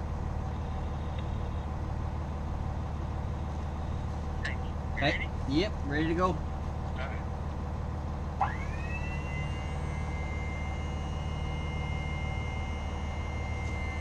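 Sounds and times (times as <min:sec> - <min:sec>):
steady low hum: 0:00.0 - 0:14.0
jack motor whine: 0:08.3 - 0:14.0.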